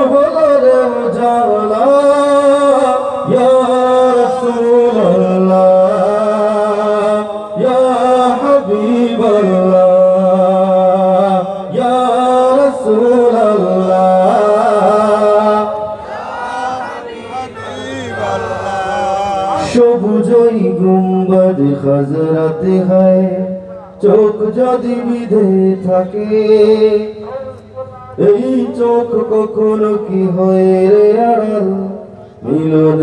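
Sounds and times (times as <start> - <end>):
man singing into a microphone: 0.0 - 16.0, 16.8 - 33.0.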